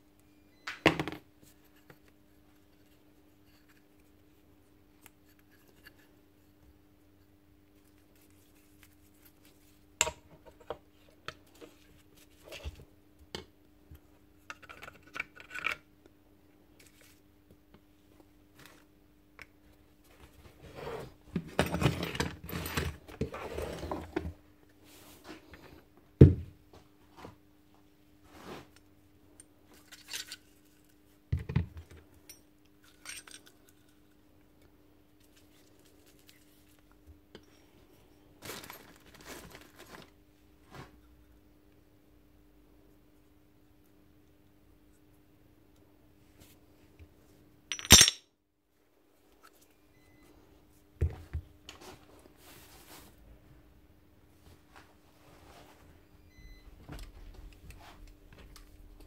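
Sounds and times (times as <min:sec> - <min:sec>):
metal parts clicking and clinking: 0:47.7 - 0:48.2.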